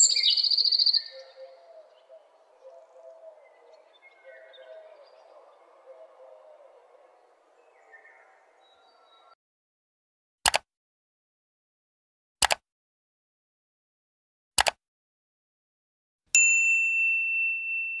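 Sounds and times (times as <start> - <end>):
high bell ding: 16.4 - 18.0.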